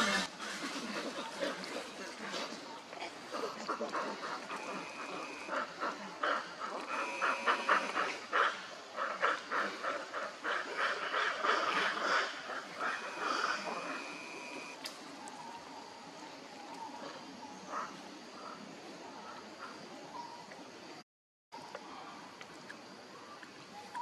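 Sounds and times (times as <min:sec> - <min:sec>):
macaques calling: 0:03.4 - 0:14.8.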